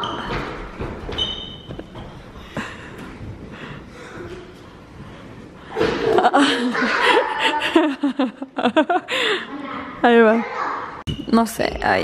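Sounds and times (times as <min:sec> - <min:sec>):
high squeak: 0:01.1 - 0:01.7.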